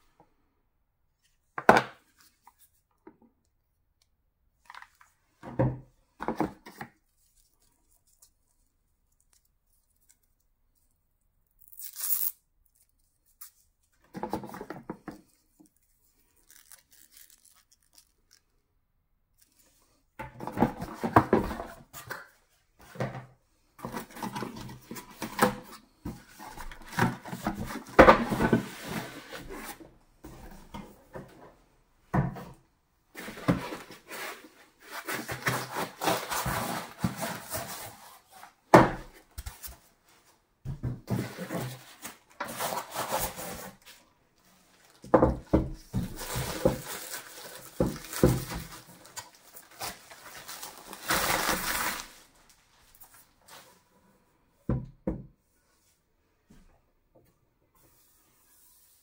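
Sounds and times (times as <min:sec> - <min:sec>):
rustling of card and plastic wrap: 0:15.2 - 0:18.6, 0:33.2 - 0:38.6, 0:41.1 - 0:53.7
cardboard ripping: 0:46.0 - 0:52.3.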